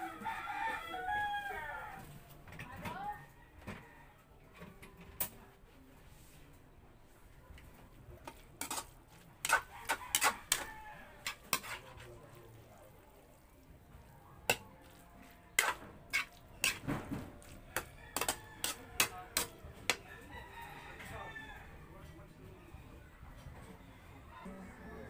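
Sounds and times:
metal spatula scraping wok: 0:08.2 - 0:12.2, 0:14.4 - 0:20.0.

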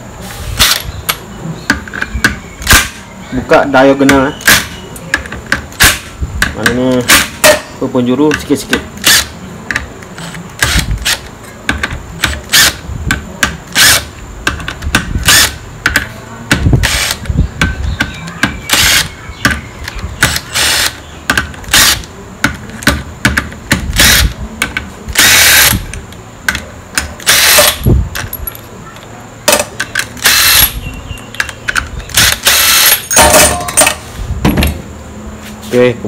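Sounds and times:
impact driver bursts: 0:02.6 - 0:03.0, 0:05.8 - 0:06.1, 0:10.6 - 0:11.2, 0:12.2 - 0:12.8, 0:13.7 - 0:14.1, 0:15.2 - 0:15.6, 0:16.6 - 0:17.2, 0:18.7 - 0:19.6, 0:20.2 - 0:21.0, 0:21.7 - 0:22.1, 0:23.8 - 0:24.4, 0:25.1 - 0:25.9, 0:27.2 - 0:27.9, 0:30.2 - 0:30.8, 0:32.1 - 0:33.2.

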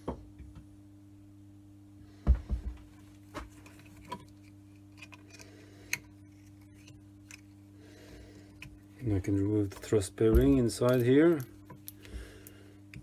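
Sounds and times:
low steady hum: 0:00.0 - 0:13.0
metal parts knocking and clicking: 0:09.2 - 0:12.0.

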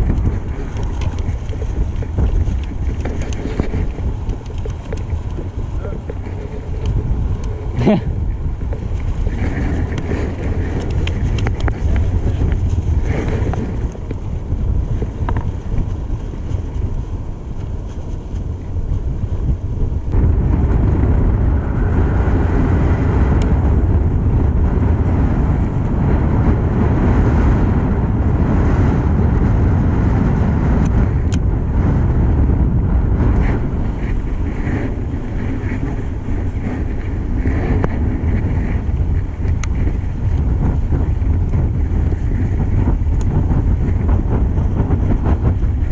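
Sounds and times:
wind buffeting microphone: 0:00.0 - 0:45.9.

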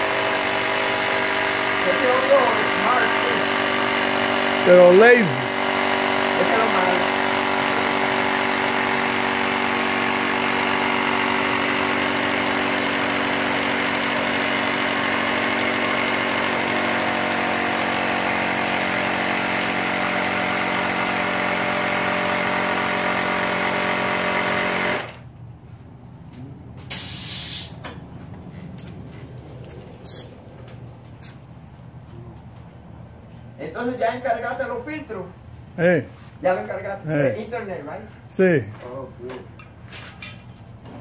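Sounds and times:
tire inflator pump buzzing: 0:00.0 - 0:25.4, 0:26.9 - 0:27.9
air hissing: 0:26.9 - 0:27.8.

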